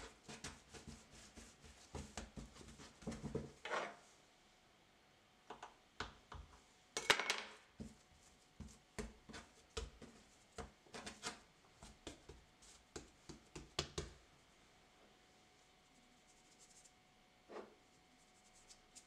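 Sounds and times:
dough knocking on wooden table: 0:08.6 - 0:10.8, 0:11.8 - 0:14.2.

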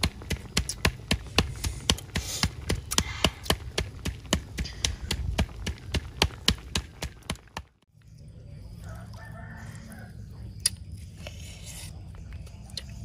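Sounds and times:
wood fire crackling: 0:00.0 - 0:08.0.

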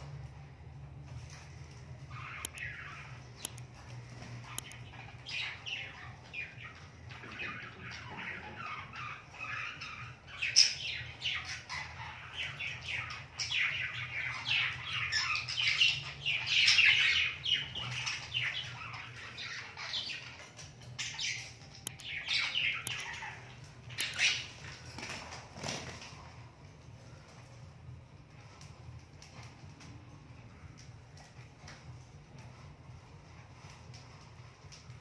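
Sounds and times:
budgie chirping and warbling: 0:04.5 - 0:24.8.

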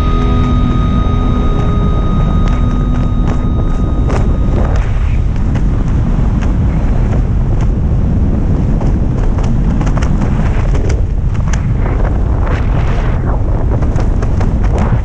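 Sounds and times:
sharp ticks: 0:00.0 - 0:07.8
wind buffeting microphone: 0:00.0 - 0:15.0.

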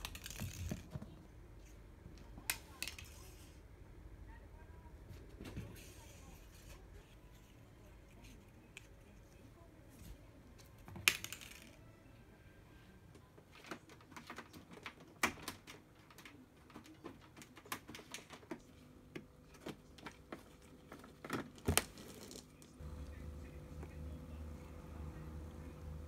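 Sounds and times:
cat paws tapping on plastic: 0:13.5 - 0:22.4.

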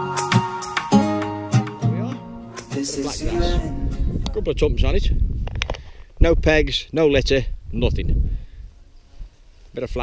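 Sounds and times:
acoustic guitar strumming chords: 0:00.0 - 0:04.2.

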